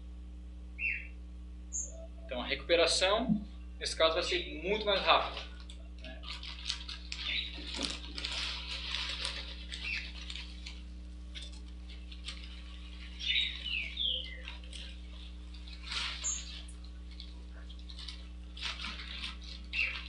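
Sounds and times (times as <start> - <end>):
steady low hum: 0.0 - 20.0
high chirps: 0.8 - 2.4, 12.9 - 16.7.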